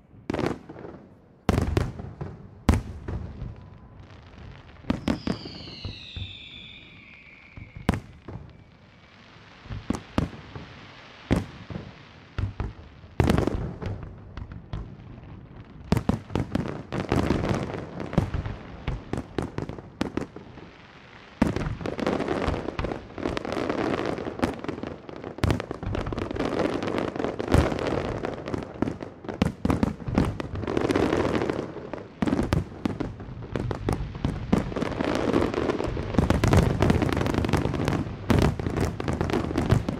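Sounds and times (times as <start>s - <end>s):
fireworks bursting with bangs: 0.0s - 39.9s
fireworks crackling: 0.0s - 39.9s
falling firework whistle: 4.8s - 9.2s.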